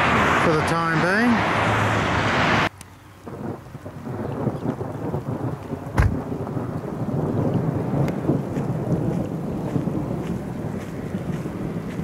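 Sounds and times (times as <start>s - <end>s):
thunderstorm rushing noise: 0.0s - 12.0s
sharp low thud: 5.9s - 6.4s.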